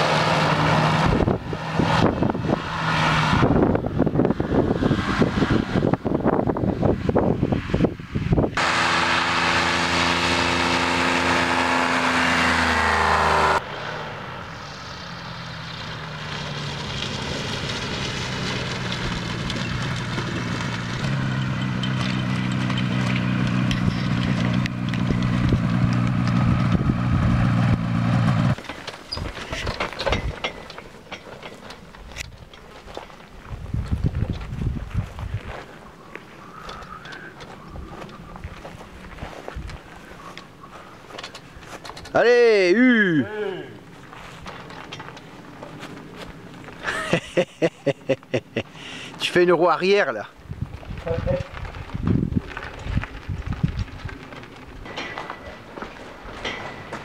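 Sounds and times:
ultralight engine and propeller: 0.0s - 42.2s.

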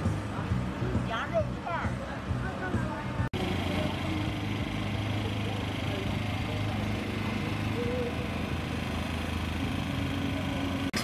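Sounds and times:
small engine running: 3.4s - 11.0s.

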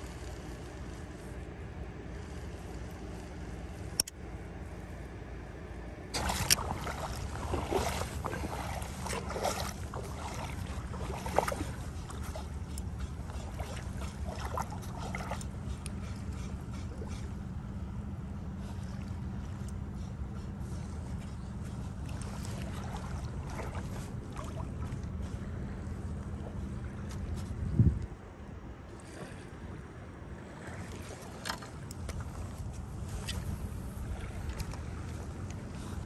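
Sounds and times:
steady low rumble: 0.0s - 36.0s
small waves lapping on rocks: 6.2s - 15.8s.

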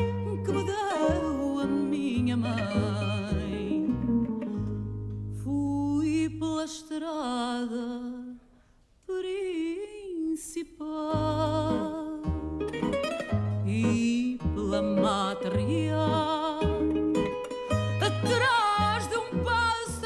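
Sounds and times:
woman singing with vibrato: 0.0s - 4.8s, 5.4s - 8.5s, 9.1s - 12.4s, 13.6s - 17.0s, 18.0s - 20.0s
guitars playing: 0.0s - 6.2s, 11.2s - 20.0s.

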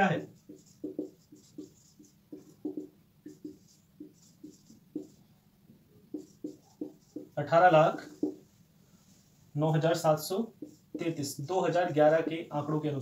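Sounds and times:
marker pen writing on whiteboard: 0.0s - 8.6s, 9.9s - 12.8s.

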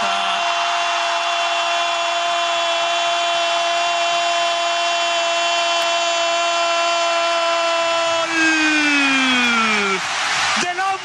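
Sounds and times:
stadium crowd noise: 0.0s - 11.0s.

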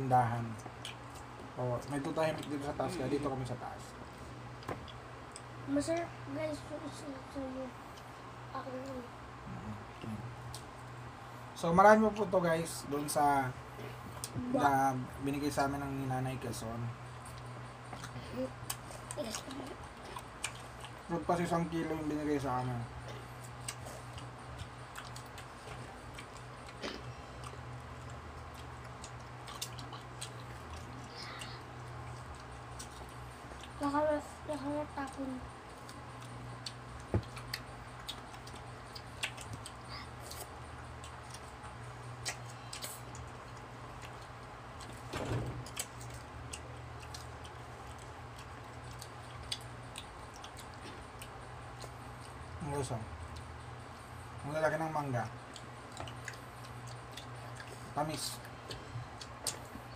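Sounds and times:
electric fan humming: 0.0s - 59.9s
soft chewing: 0.4s - 59.9s
people eating lip smacks: 0.6s - 1.4s, 22.9s - 33.8s, 35.7s - 45.0s, 45.6s - 52.5s, 55.3s - 59.9s.

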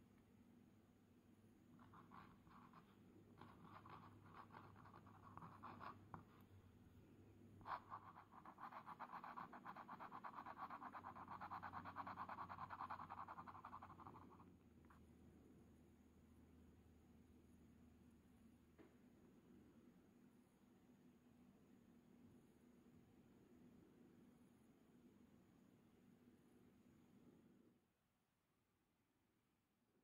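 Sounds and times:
pen nib scratching on paper: 1.8s - 6.5s, 7.6s - 15.0s.

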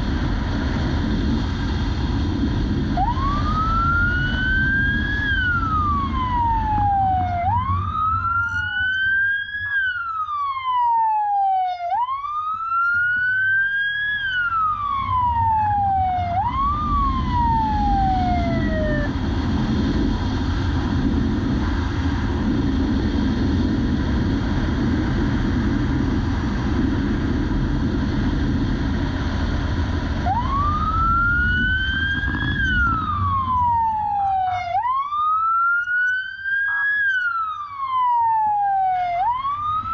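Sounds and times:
wind and road noise: 0.0s - 39.9s
police siren wailing: 2.8s - 19.2s, 30.2s - 39.9s.

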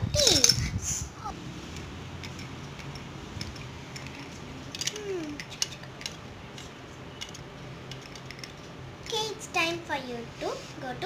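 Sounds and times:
steady background hum: 0.0s - 11.0s
plastic toys clicking: 0.2s - 0.6s, 1.7s - 9.2s.

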